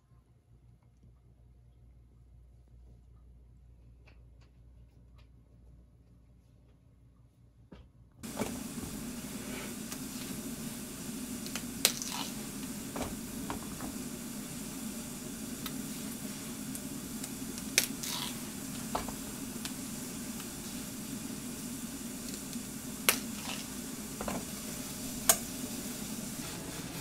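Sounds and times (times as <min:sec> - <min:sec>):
kitchen noise hiss: 0:08.2 - 0:27.0.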